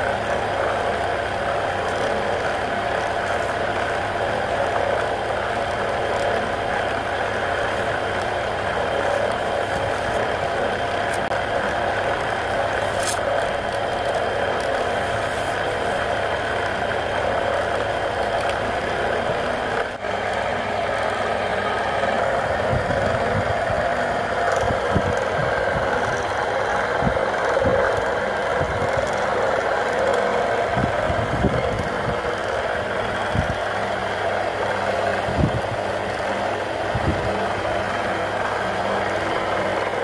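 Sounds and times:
wood lathe humming: 0.0s - 40.0s.

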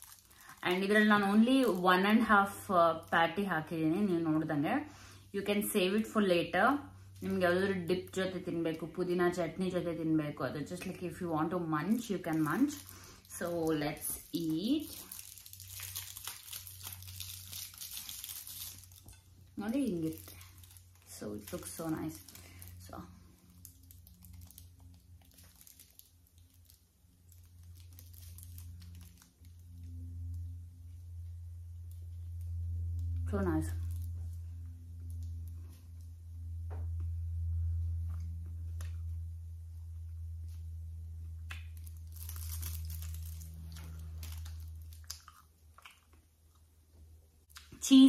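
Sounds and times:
foil crinkling: 0.0s - 3.2s, 10.8s - 30.5s, 31.8s - 34.4s, 41.5s - 45.4s
steady low hum: 0.0s - 48.0s
person chewing food: 41.5s - 46.8s.

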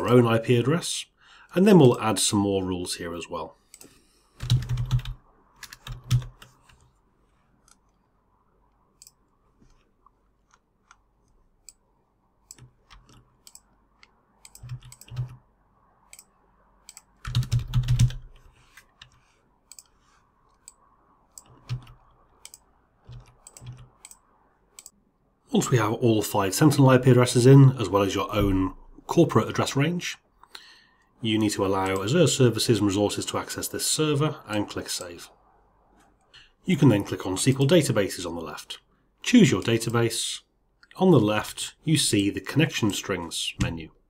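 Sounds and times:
computer keyboard typing: 3.8s - 6.9s, 12.5s - 15.4s, 16.9s - 18.4s, 20.6s - 24.2s.

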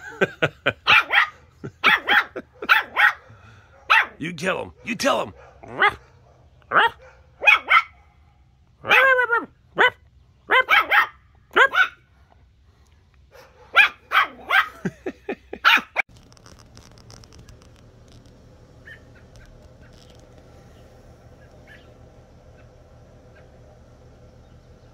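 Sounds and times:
puppy barking high-pitched yaps: 0.9s - 8.2s, 8.8s - 12.0s, 13.3s - 14.8s, 15.6s - 16.0s, 18.8s - 19.4s, 21.6s - 21.9s.

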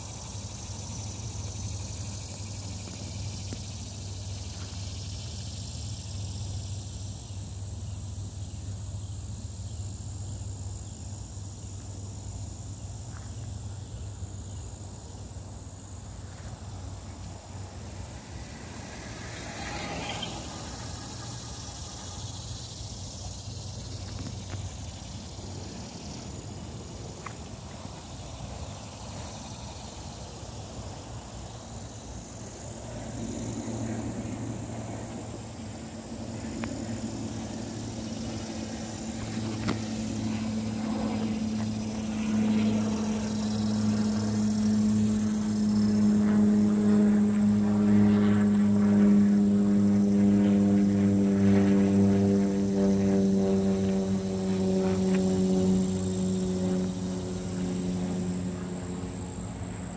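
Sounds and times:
motor droning: 16.0s - 29.9s, 32.5s - 59.9s.

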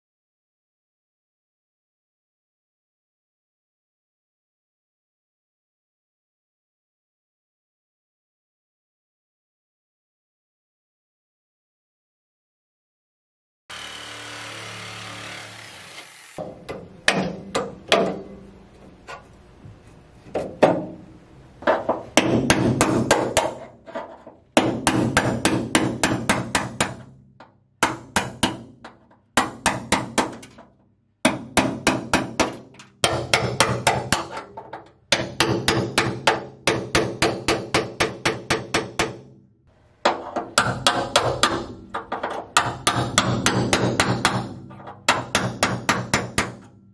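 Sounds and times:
hammer blows on sheet steel: 22.0s - 23.9s, 24.5s - 39.4s, 40.1s - 46.9s.

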